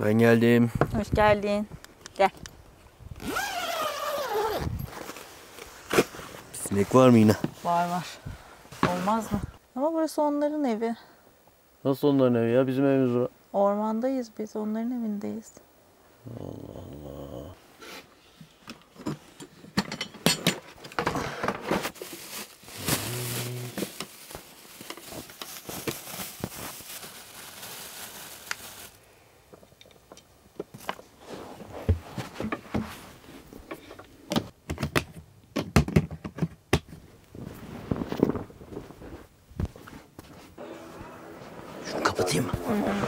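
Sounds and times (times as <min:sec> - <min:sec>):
rustling noise: 0:03.1 - 0:09.6, 0:21.6 - 0:29.0, 0:30.7 - 0:34.0, 0:37.0 - 0:43.0.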